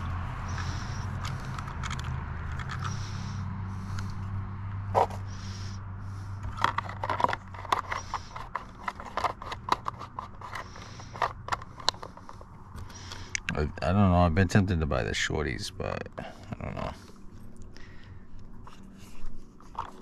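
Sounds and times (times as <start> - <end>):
hard plastic parts clicking and knocking: 0.5 - 3.0, 6.4 - 13.2.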